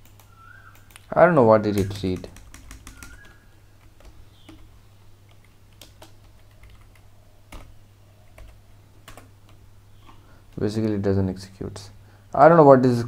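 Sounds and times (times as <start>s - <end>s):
computer keyboard keystrokes: 0.0s - 1.1s, 1.7s - 4.7s, 5.3s - 7.8s, 8.4s - 9.6s.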